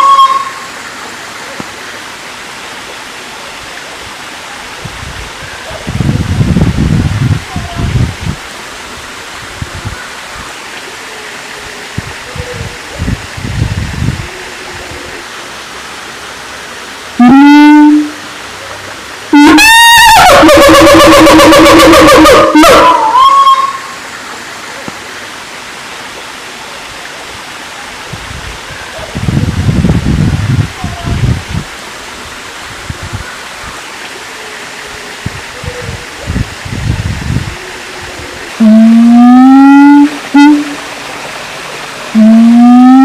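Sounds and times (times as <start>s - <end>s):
steady hiss: 0.0s - 19.6s, 22.4s - 42.9s
ape low booming calls: 19.4s - 23.8s
ape loud pitched whoops: 19.4s - 23.9s, 38.6s - 40.8s, 42.2s - 43.0s.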